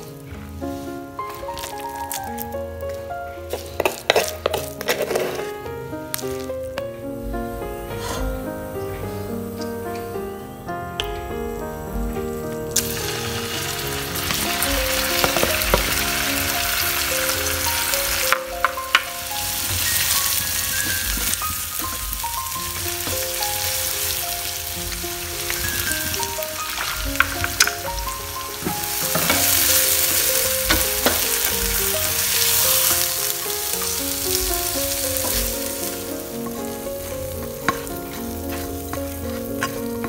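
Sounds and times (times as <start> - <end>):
paste sizzling in hot oil: 0.0 - 6.6, 12.7 - 40.0
plastic spatula scraping pan: 3.5 - 5.6.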